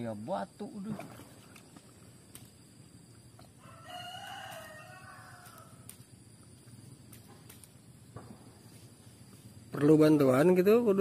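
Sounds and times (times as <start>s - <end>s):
rooster crowing: 3.6s - 5.9s.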